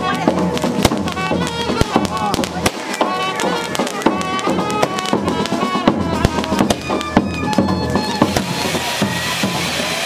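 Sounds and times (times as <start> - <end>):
reedy wind instrument melody: 0.0 - 10.0
rapid sharp cracks: 0.5 - 7.6.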